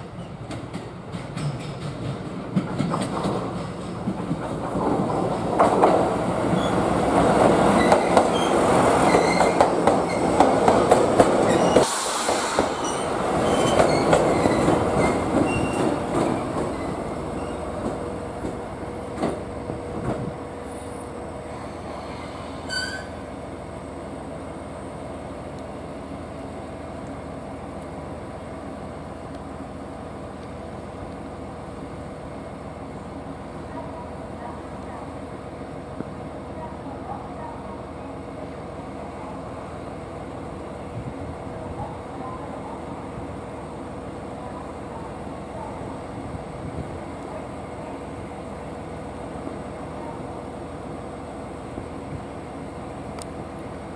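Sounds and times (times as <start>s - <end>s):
railcar engine hum: 0.0s - 53.9s
train rumble: 0.0s - 53.9s
train wheels clattering: 0.2s - 19.4s
wheel flange squeals: 7.8s - 10.4s, 11.4s - 11.9s, 12.8s - 17.8s, 21.9s - 23.2s.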